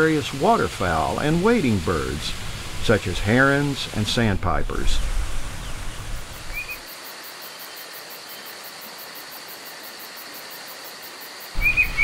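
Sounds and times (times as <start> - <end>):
stream rushing over rocks: 0.0 - 7.4
insects trilling: 0.0 - 12.0
bird chirp: 11.6 - 12.0.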